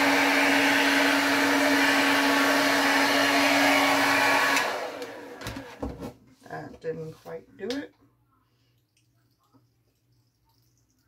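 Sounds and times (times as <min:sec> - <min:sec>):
hair dryer running: 0:00.0 - 0:06.0.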